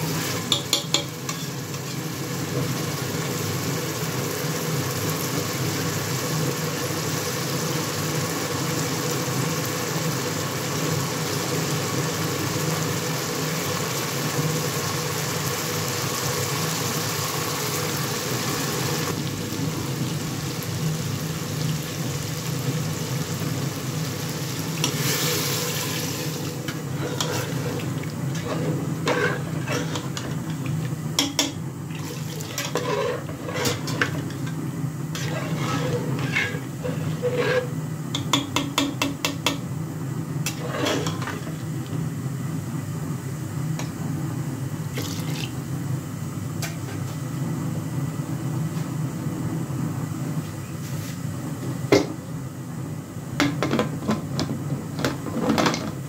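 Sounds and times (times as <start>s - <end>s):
water pouring into metal pot: 31.9s - 32.6s, 45.0s - 45.5s.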